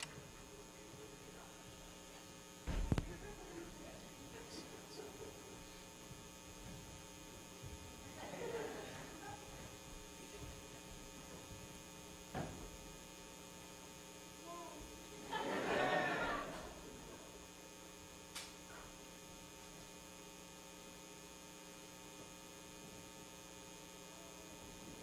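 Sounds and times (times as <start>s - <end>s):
electrical mains hum: 0.0s - 25.0s
loud thump: 2.6s - 3.0s
faint voice: 14.4s - 14.9s.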